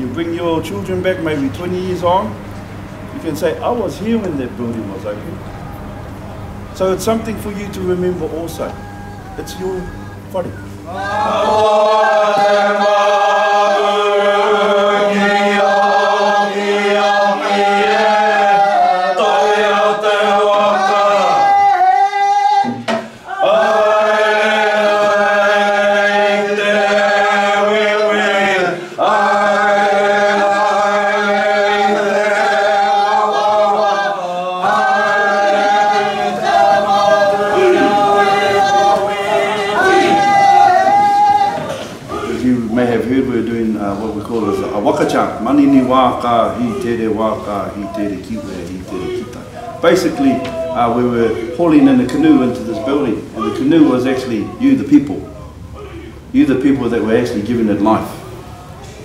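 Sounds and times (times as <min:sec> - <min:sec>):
voices chanting in unison: 0:08.6 - 0:42.8, 0:43.9 - 0:56.3.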